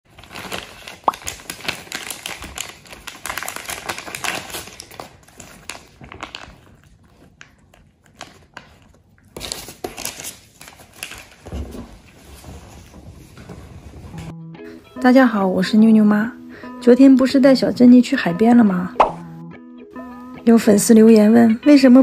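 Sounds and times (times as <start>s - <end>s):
plastic packets crinkling: 0.1s - 11.5s.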